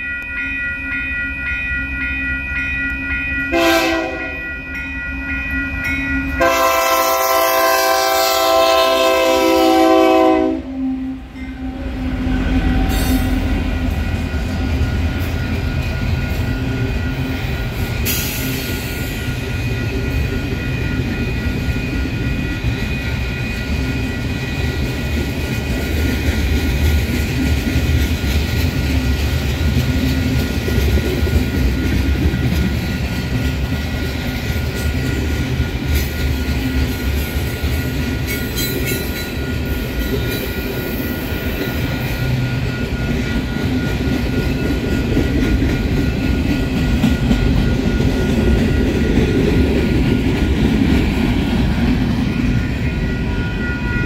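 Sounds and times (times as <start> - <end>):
train rumble and wheel clatter: 0.0 - 54.0
locomotive horn blast: 3.5 - 4.4, 6.4 - 13.4.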